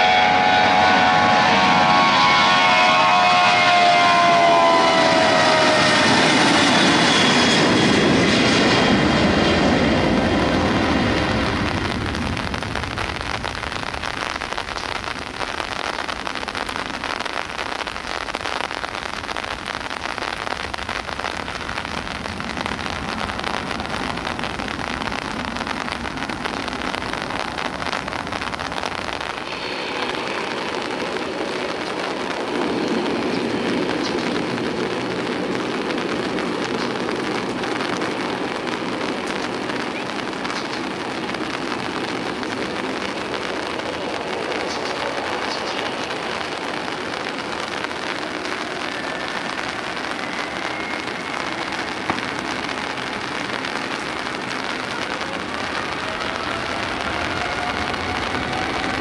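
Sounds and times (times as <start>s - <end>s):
jet airliner engine whine: 0.0s - 13.9s, 21.2s - 59.0s
heavy rain hiss: 0.0s - 59.0s.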